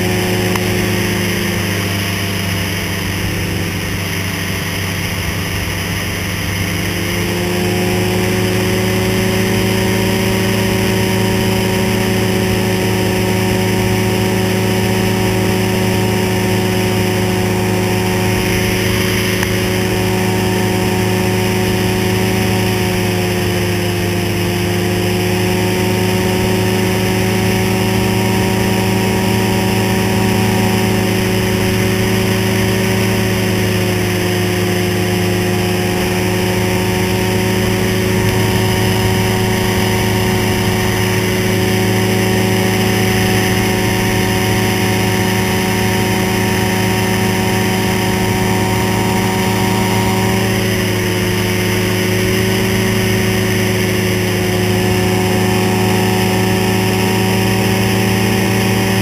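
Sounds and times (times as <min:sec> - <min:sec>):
engine and propeller running: 0:00.0 - 0:59.0.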